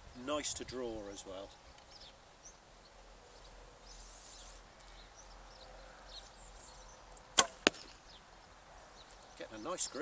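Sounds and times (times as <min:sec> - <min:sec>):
faint birdsong: 0:00.0 - 0:10.0
bowstring snapping: 0:07.2 - 0:08.0
arrow striking target: 0:07.4 - 0:08.0.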